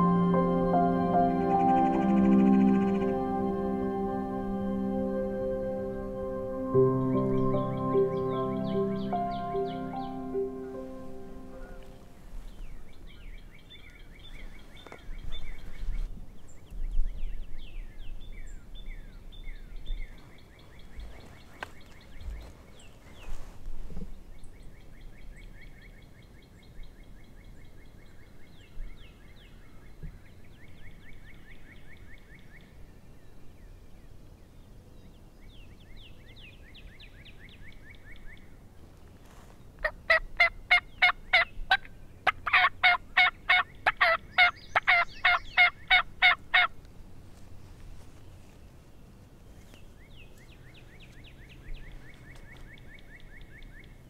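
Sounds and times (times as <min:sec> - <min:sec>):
turkey yelps: 0:40.1 - 0:46.7.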